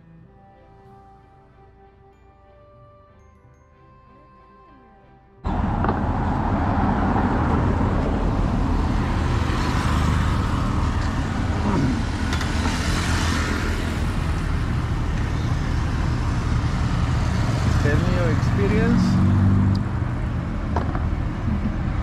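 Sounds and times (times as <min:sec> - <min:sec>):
road traffic: 0:03.8 - 0:22.0
vehicle rushing past: 0:05.4 - 0:22.0.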